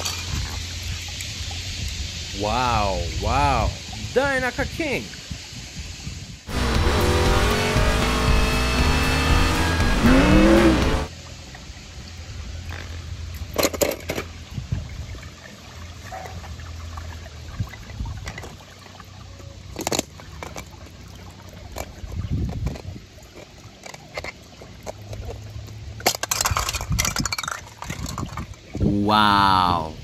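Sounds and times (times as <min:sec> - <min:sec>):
water sloshing and splashing: 0:13.6 - 0:28.7
toy cars knocking and clicking: 0:22.6 - 0:28.7.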